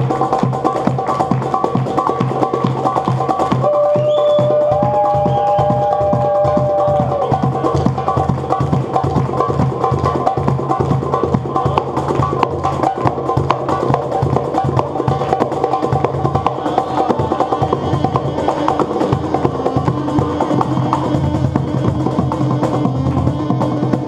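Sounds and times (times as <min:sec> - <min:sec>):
quick busy percussion: 0:00.0 - 0:24.0.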